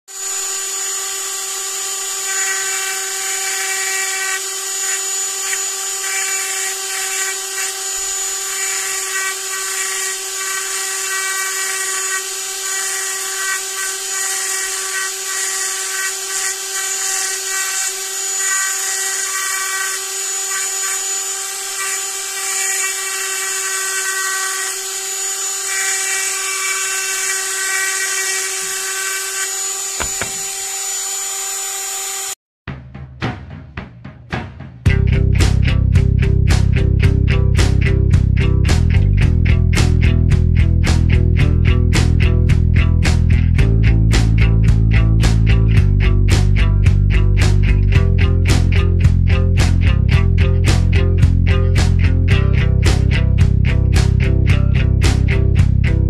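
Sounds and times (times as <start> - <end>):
bit hissing cutting wood: 0.1 - 32.4
rotary tool whirring high-pitched: 0.1 - 32.4.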